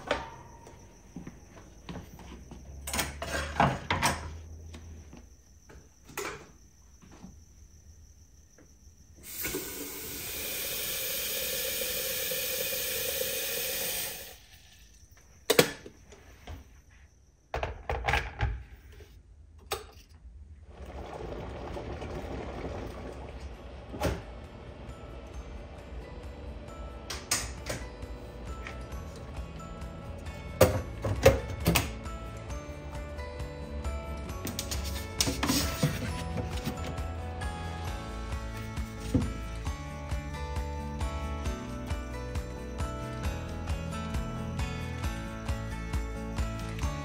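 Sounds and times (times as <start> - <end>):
tap water filling kettle: 9.2 - 14.4.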